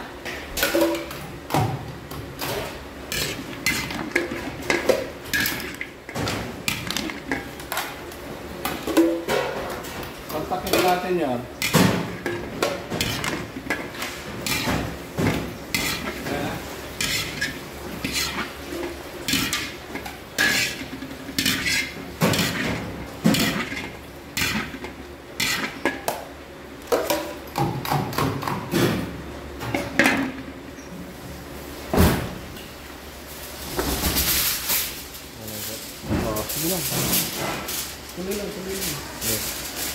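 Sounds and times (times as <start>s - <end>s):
ladle scraping and clanking on steel pan: 2.4s - 7.9s, 11.6s - 26.0s.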